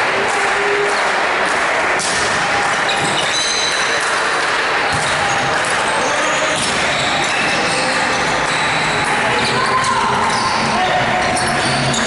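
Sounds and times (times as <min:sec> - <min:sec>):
background noise: 0:00.0 - 0:12.0
shoes squeaking on floor: 0:02.9 - 0:04.0, 0:04.9 - 0:12.0.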